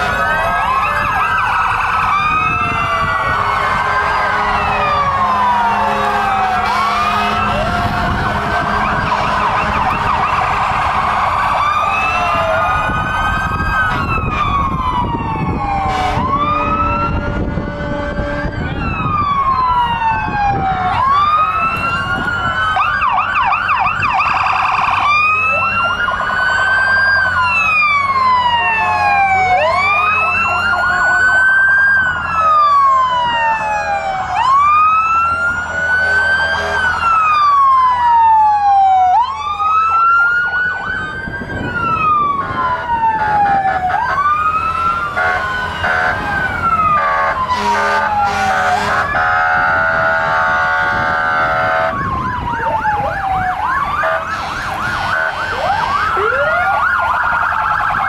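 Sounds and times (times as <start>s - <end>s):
fire truck sirens wailing: 0.0s - 58.0s
steady horn tone: 3.1s - 11.0s, 15.8s - 18.8s, 35.9s - 37.2s, 42.7s - 52.1s, 54.0s - 56.3s.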